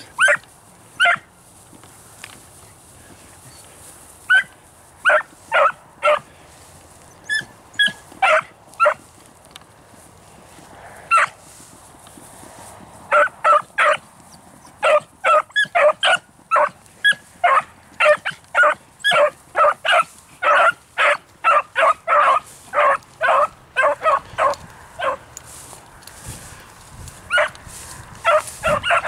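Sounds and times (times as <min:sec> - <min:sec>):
dogs barking: 0:00.0 - 0:00.4, 0:01.0 - 0:01.3, 0:04.3 - 0:06.3, 0:07.3 - 0:09.0, 0:11.1 - 0:11.4, 0:13.1 - 0:25.3, 0:27.3 - 0:27.6, 0:28.2 - 0:29.0.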